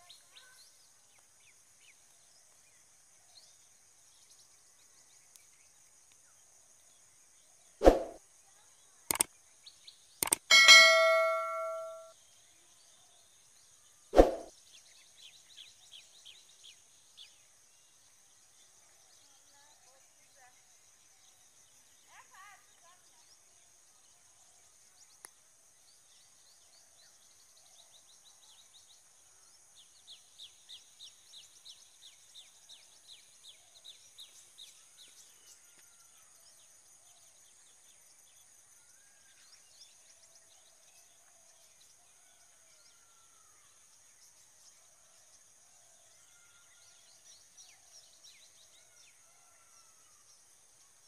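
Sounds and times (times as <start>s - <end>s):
quick sharp bird chirps: 7.8s - 8.2s, 14.2s - 14.5s
sharp click: 9.1s - 9.3s, 10.2s - 12.0s.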